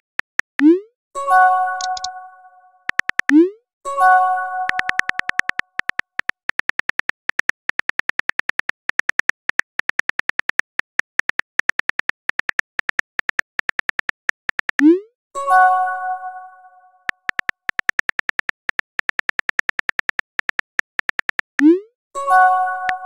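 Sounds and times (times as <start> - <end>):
phone keyboard key clicks: 0.2 - 0.6, 1.8 - 2.1, 2.9 - 3.4, 4.7 - 14.8, 17.1 - 21.6.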